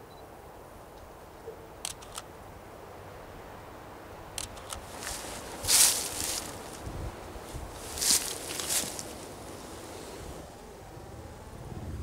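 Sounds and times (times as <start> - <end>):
camera shutter firing: 1.8 - 2.3, 4.4 - 4.8
handling rustle: 4.4 - 10.5.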